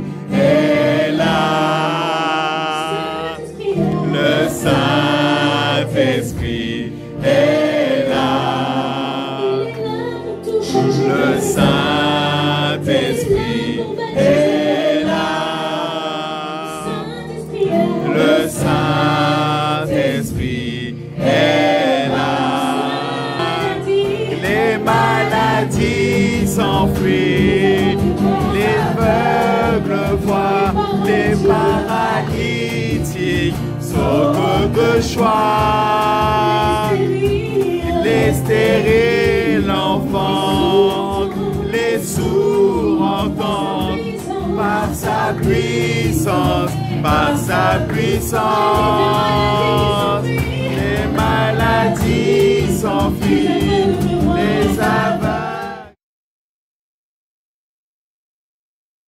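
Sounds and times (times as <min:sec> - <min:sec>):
held instrumental accompaniment: 0:00.0 - 0:56.0
voices singing along: 0:00.0 - 0:56.0
woman singing into a microphone: 0:02.8 - 0:05.1, 0:09.4 - 0:15.2, 0:16.8 - 0:19.2, 0:22.8 - 0:35.3, 0:36.2 - 0:55.4.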